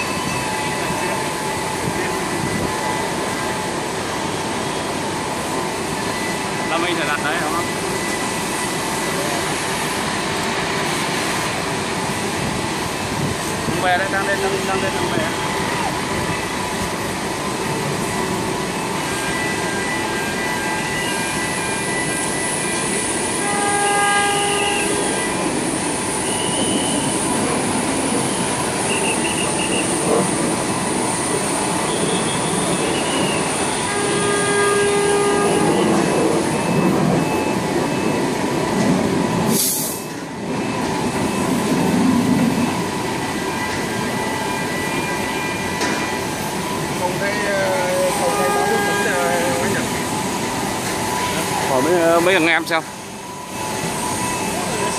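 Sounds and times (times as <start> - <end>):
short horn-like tones: 23.3 - 25.5, 31.9 - 36.1, 47.3 - 50.0.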